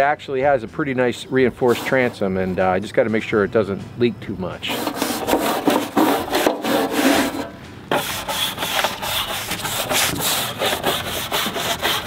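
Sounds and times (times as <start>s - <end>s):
scrub brush scrubbing metal: 1.6s - 2.2s, 4.7s - 12.0s.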